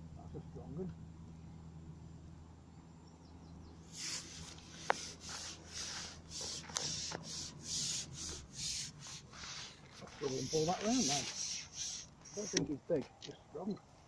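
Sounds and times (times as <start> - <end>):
rubbing and rustling: 3.9 - 12.8.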